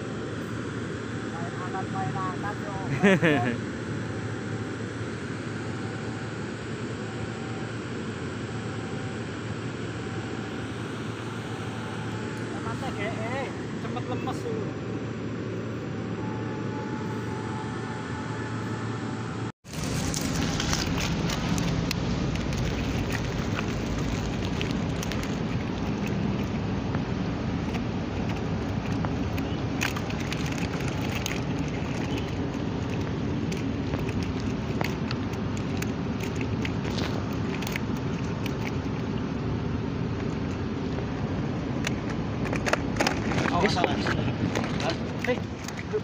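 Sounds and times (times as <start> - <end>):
steady rumbling background: 3.6 - 46.0
fish net rustling and clicking: 19.7 - 26.7, 27.7 - 39.1.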